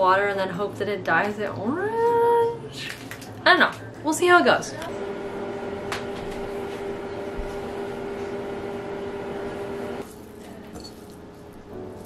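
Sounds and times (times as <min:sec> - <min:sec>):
steady motor hum: 0:04.7 - 0:10.0.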